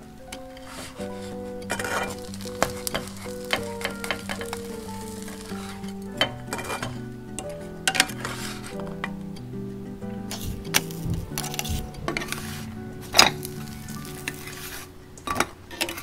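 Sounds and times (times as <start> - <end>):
spatula scraping a pan: 0.6 - 5.9, 8.1 - 8.8, 10.3 - 14.9
bread sizzling in a frying pan: 1.7 - 6.8, 10.4 - 14.9.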